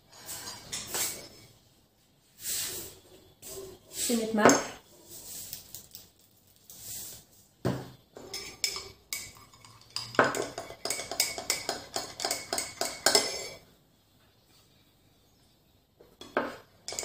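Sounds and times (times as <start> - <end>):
spoon clinking against dish: 8.3 - 13.6.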